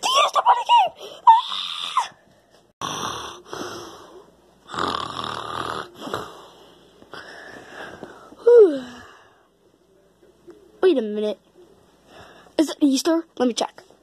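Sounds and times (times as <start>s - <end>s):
child imitating snoring: 2.8s - 3.9s, 4.7s - 6.4s.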